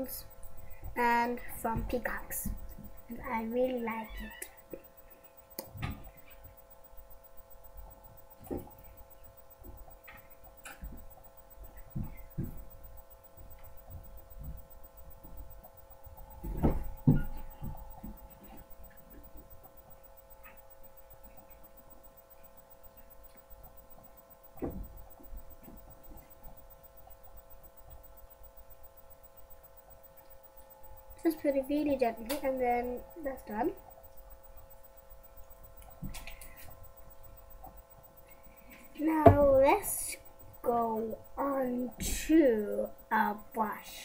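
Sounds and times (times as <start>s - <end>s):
electrical hum: 0.0s - 44.0s
microphone handling thumps: 11.6s - 12.7s, 16.3s - 19.3s, 24.6s - 26.6s.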